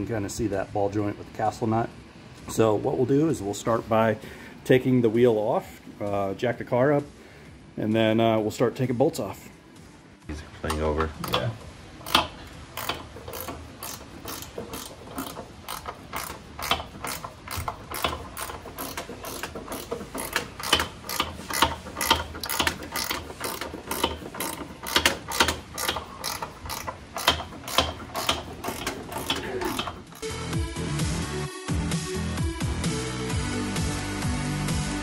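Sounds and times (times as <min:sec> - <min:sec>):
ratchet wrench clicking: 0:11.2 - 0:30.3.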